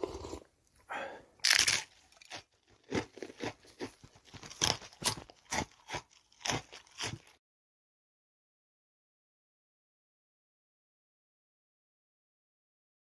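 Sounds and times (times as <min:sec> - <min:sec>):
short irregular crunches: 0:01.4 - 0:07.4.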